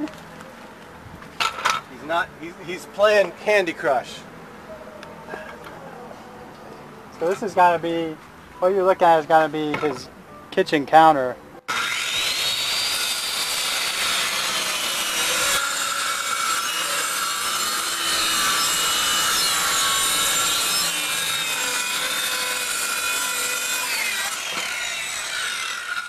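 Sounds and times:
circular saw cutting wood: 11.7 - 26.0.

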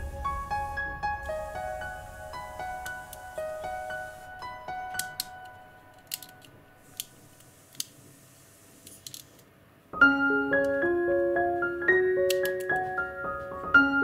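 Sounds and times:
piano music: 0.0 - 6.9, 10.0 - 14.0
plastic parts clicking together: 4.9 - 8.0, 8.8 - 9.5, 12.3 - 12.8.

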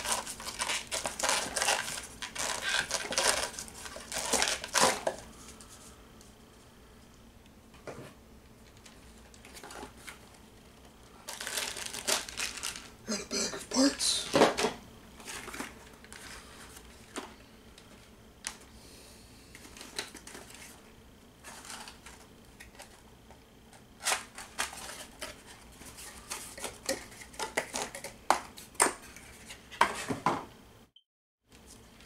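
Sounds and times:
cardboard rustling: 0.0 - 5.6, 15.2 - 17.0, 21.4 - 23.0.

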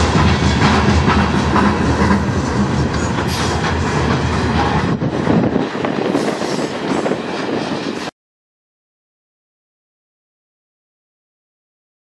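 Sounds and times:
train wheels rumbling on track: 0.0 - 8.2.

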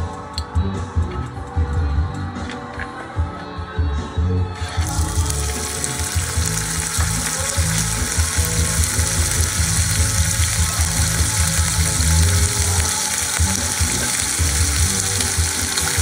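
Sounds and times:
bacon sizzling in a frying pan: 4.6 - 16.0.

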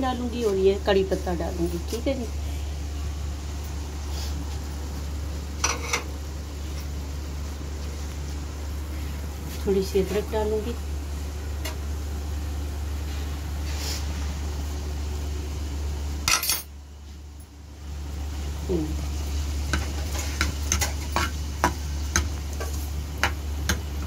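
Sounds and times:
oil sizzling in frying pan: 17.8 - 24.0.

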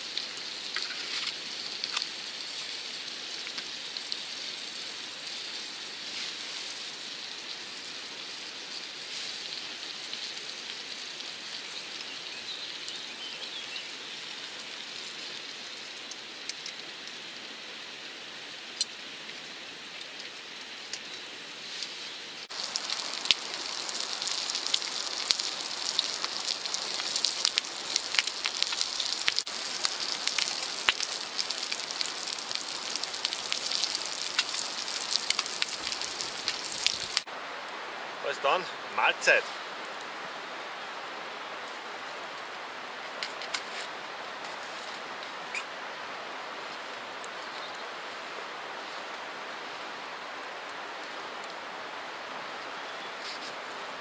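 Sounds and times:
bacon and eggs sizzling in pan: 0.0 - 17.4, 18.4 - 37.3.

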